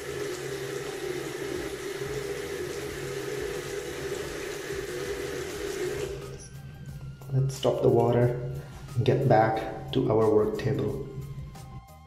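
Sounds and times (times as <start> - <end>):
tap water running into sink: 0.0 - 7.1.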